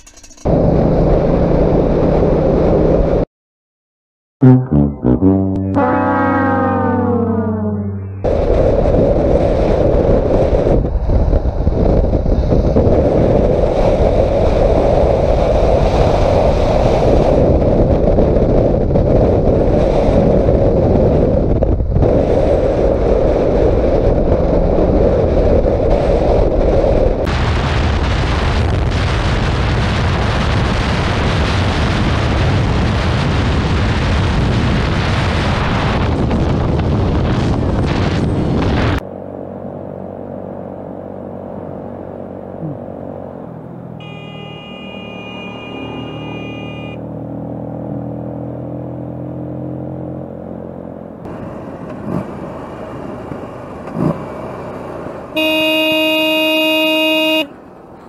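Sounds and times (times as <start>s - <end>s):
low motorcycle riding rumble: 0.0s - 3.2s, 4.4s - 58.0s
wind rush on microphone: 8.2s - 39.0s.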